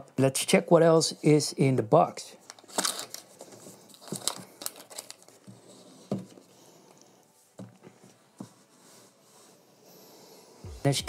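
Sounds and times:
knocks and packaging rustles: 2.6 - 6.5.

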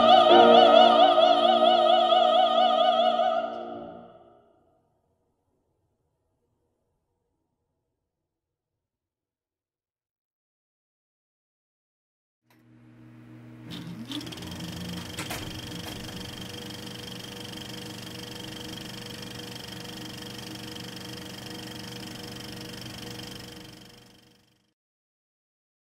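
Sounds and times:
film projector whirring: 12.5 - 24.7
projector clatter: 13.6 - 24.4.

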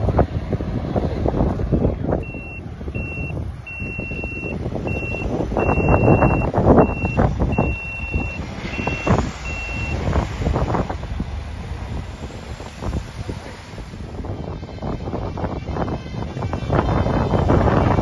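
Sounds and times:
fire engine rumbling: 0.0 - 18.0
wind buffeting microphone: 0.0 - 18.0
high electronic beep: 2.2 - 10.0.

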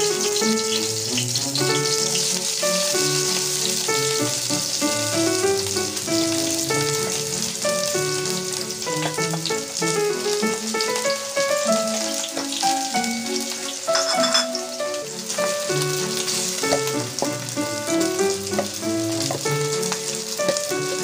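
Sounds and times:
background music held notes: 0.0 - 21.0
onions sizzling in a frying pan: 0.0 - 21.0.

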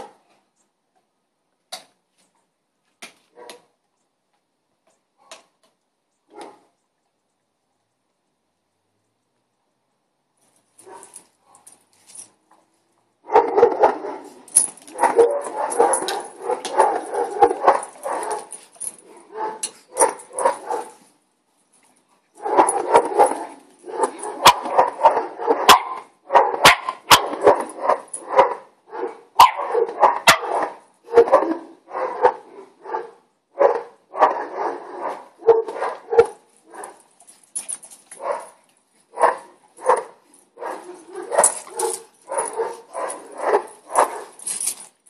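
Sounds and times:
dogs barking: 10.8 - 11.7, 13.2 - 21.0, 22.4 - 37.1, 38.1 - 44.5.

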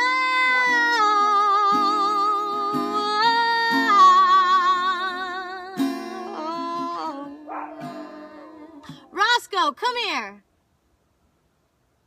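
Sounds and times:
woman singing long notes: 0.0 - 9.2
strummed acoustic guitar: 0.0 - 9.5.

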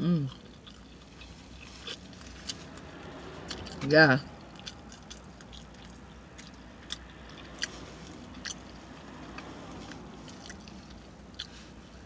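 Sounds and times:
soft chewing: 0.0 - 12.0.

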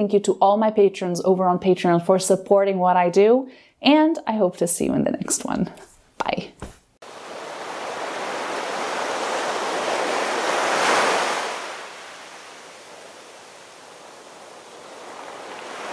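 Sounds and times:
ocean surf wave washing: 7.0 - 15.9.

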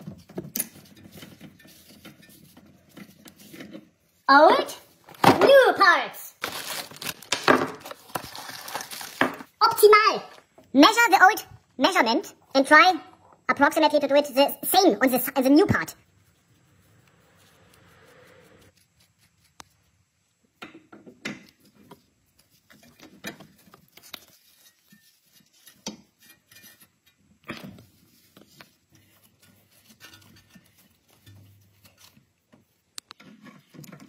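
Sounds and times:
metallic clicks and scrapes: 21.5 - 34.0.

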